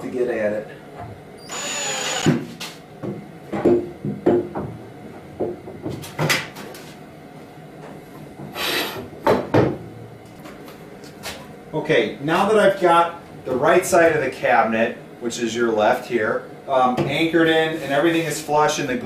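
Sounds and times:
clamps and drill knocking on wood: 0:02.0 - 0:04.8.

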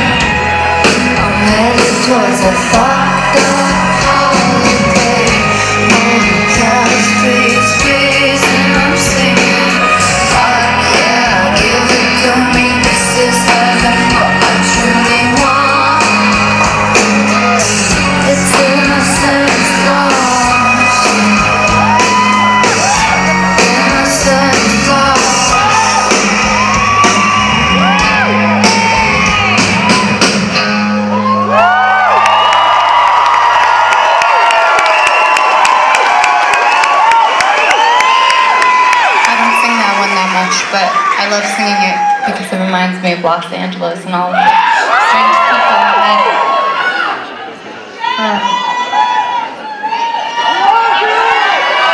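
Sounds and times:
person singing: 0:00.0 - 0:29.6
live band playing: 0:00.0 - 0:46.5
audience screaming and cheering: 0:00.0 - 0:51.9.

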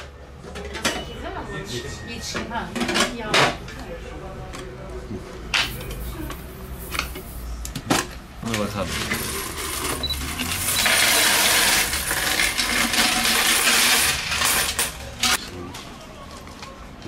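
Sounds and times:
coins rattling in a tin: 0:09.0 - 0:15.4
coins clinking: 0:09.1 - 0:15.4.

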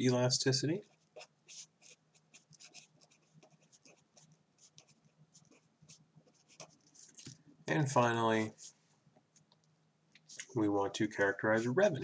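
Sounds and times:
pen scratching on paper: 0:00.8 - 0:07.1.

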